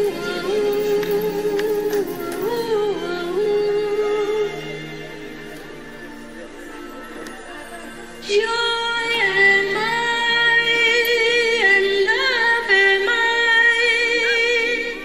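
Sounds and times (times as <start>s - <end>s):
woman singing long notes: 0.0s - 5.1s, 8.2s - 15.0s.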